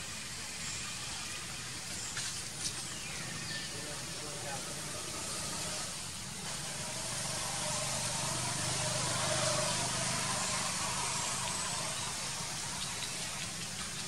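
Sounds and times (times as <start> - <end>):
outdoor background hiss: 0.0 - 14.0
faint distant voices: 3.0 - 13.7.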